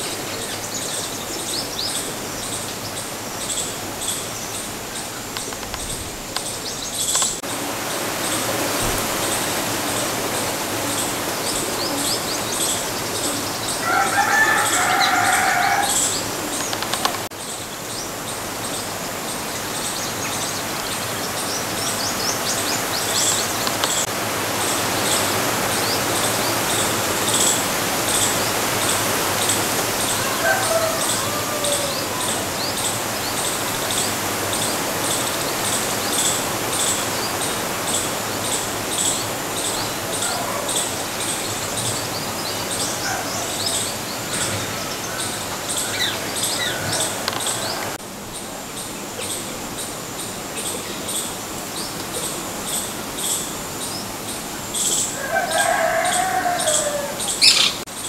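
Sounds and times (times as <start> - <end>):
small birds chirping: 0.0 - 24.1, 25.0 - 58.0
loud bird call: 8.0 - 16.8, 26.0 - 34.1.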